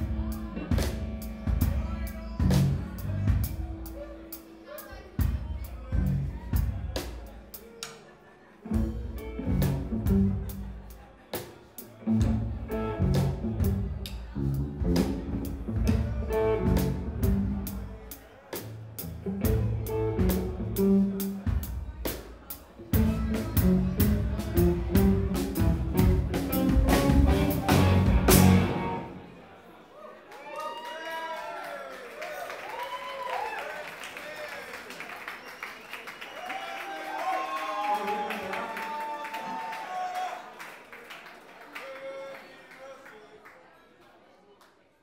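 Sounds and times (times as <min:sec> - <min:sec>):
drum kit beat: 0:00.0 - 0:07.8, 0:08.7 - 0:29.2
electric guitar: 0:08.7 - 0:10.4, 0:23.0 - 0:29.3.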